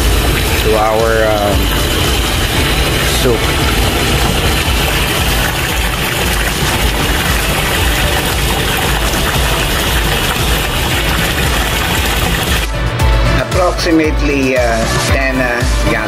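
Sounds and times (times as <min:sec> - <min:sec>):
low rumble: 0:00.0 - 0:13.4
tap water splashing into kettle: 0:00.6 - 0:12.7.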